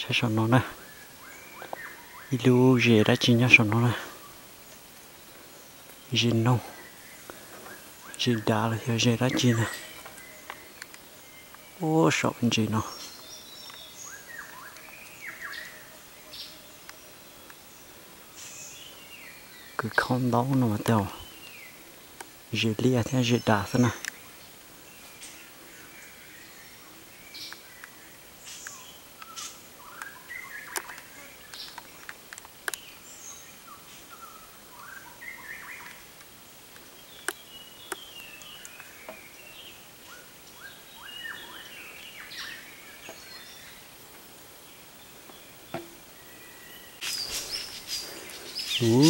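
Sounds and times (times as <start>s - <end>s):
crackling noise: 0.0s - 14.0s, 27.4s - 33.1s, 35.8s - 40.4s
birds chirping: 0.0s - 49.0s.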